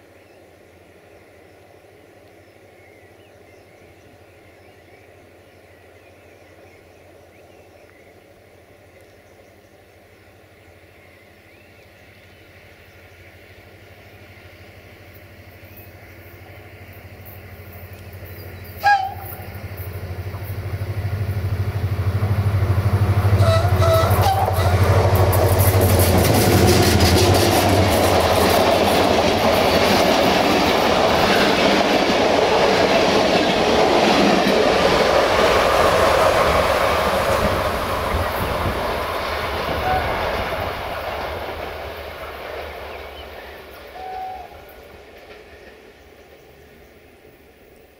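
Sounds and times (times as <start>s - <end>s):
diesel locomotive engine: 0.0s - 47.9s
train horn toot: 18.8s - 19.6s, 23.3s - 25.4s, 39.7s - 40.5s, 43.9s - 44.8s
wheels clicking over rail joints: 23.2s - 46.6s.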